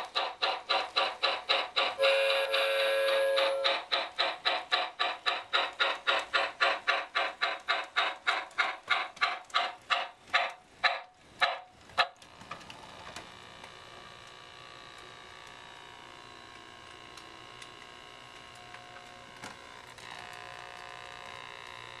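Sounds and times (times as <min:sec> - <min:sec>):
model locomotive steam chuffs: 0:00.0 - 0:12.0
steady electric hum: 0:11.2 - 0:22.0.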